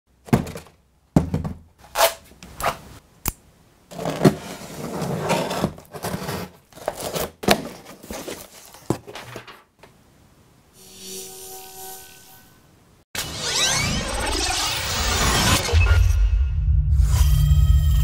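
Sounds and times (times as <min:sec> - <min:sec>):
rustling and scraping: 0:03.9 - 0:09.7.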